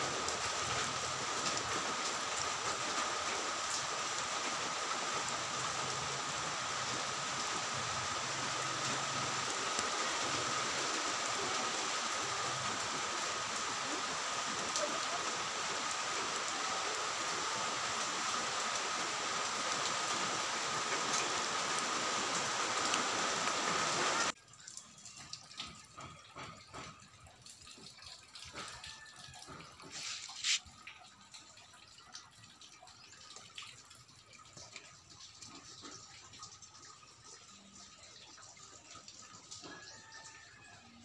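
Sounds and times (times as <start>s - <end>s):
rush of falling water: 0.0s - 24.4s, 25.0s - 36.6s, 37.2s - 41.0s
faint drips and taps: 24.3s - 41.0s.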